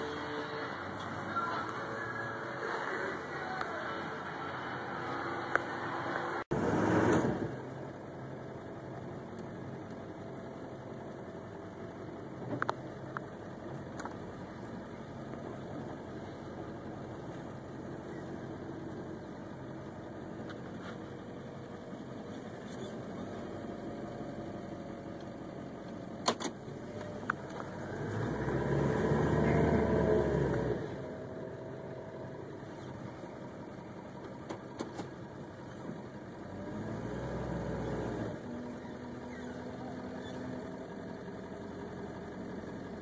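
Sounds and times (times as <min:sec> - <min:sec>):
truck engine idling: 0:00.0 - 0:06.6, 0:07.6 - 0:37.0, 0:38.0 - 0:43.0.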